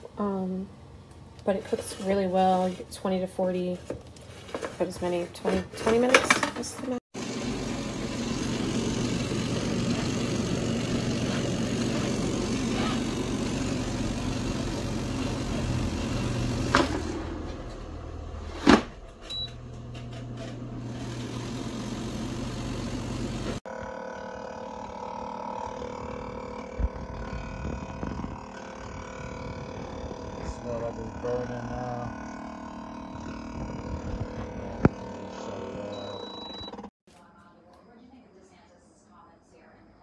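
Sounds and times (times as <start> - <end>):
air fryer fan hum: 7.2 - 36.9.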